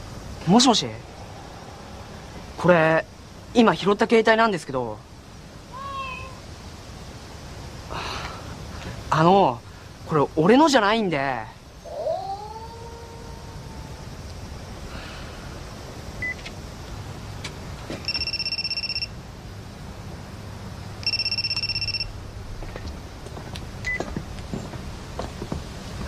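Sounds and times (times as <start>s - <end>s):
low room hum: 0.0s - 26.0s
mobile phone ringing: 18.0s - 19.1s, 21.0s - 22.1s.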